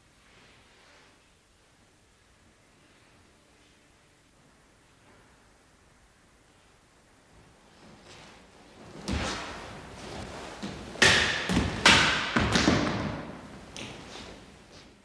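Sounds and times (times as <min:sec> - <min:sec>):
sword striking straw targets: 0:11.0 - 0:12.4.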